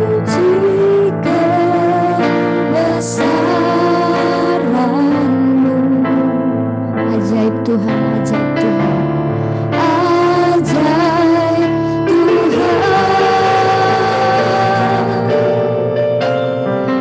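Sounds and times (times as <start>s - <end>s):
girls singing worship song: 0.0s - 6.0s, 9.8s - 15.8s
instrumental accompaniment: 0.0s - 17.0s.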